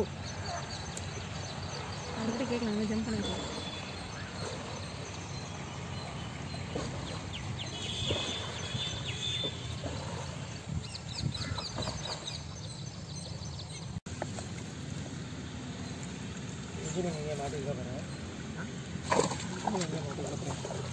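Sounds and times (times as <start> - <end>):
small birds chirping: 0.0 - 14.0
splashes: 2.4 - 12.6, 14.1 - 20.9
low outdoor background noise: 11.7 - 20.9.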